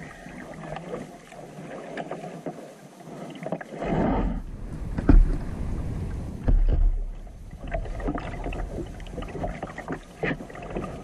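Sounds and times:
paddle splashes and drips: 0.0 - 4.2, 4.8 - 11.0
knocks against kayak hull: 4.9 - 5.4, 6.4 - 7.2.

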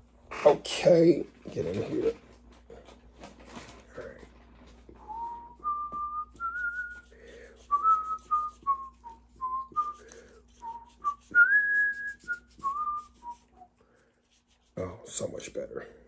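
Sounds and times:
man whistling a tune: 5.0 - 13.7.

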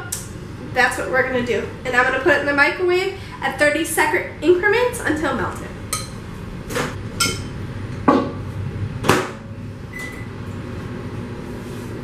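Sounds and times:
microwave oven running: 0.0 - 12.0.

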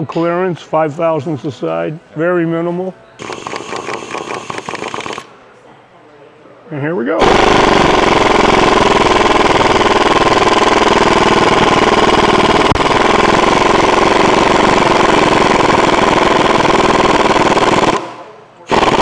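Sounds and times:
air impact wrench rattling: 3.2 - 5.3, 7.2 - 19.0.

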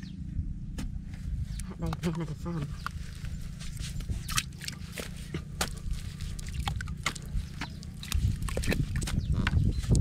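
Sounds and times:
steady low rumble: 0.0 - 10.0
shovel squelching in wet mud: 2.8 - 10.0.

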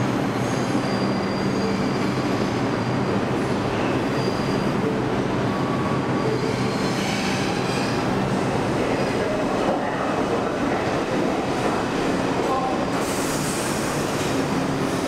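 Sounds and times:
subway train rumbling: 0.0 - 15.0
faint wheel squeals: 4.1 - 4.9.

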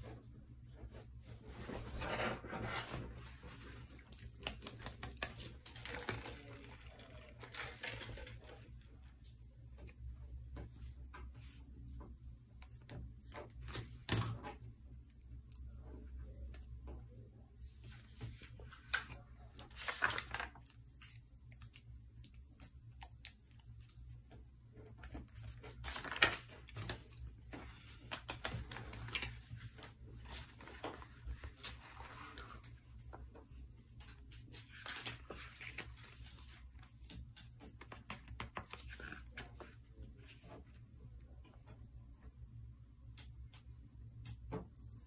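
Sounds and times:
paper rustling: 0.8 - 8.8, 17.8 - 21.8, 24.8 - 40.8.

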